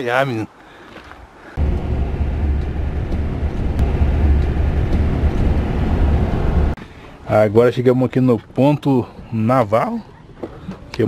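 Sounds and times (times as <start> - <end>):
wind buffeting microphone: 1.6 - 6.8.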